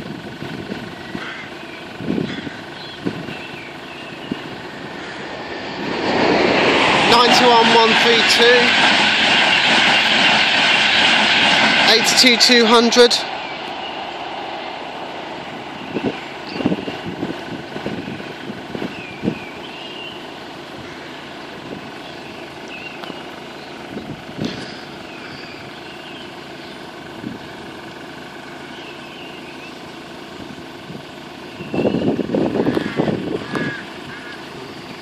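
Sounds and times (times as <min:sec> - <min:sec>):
vehicle-like hum: 0:00.0 - 0:35.0
wind buffeting microphone: 0:01.9 - 0:12.3, 0:13.3 - 0:19.7, 0:20.4 - 0:25.7, 0:27.0 - 0:27.7, 0:30.4 - 0:35.0.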